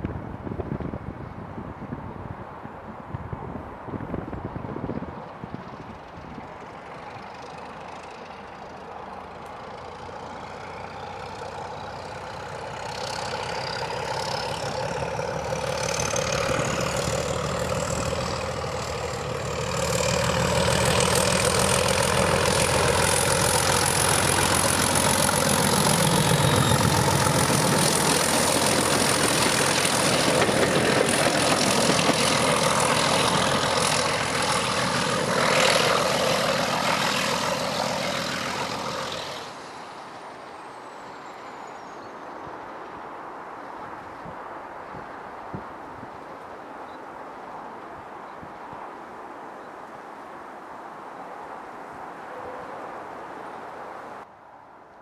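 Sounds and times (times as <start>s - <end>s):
diesel locomotive engine passing: 3.7s - 43.0s.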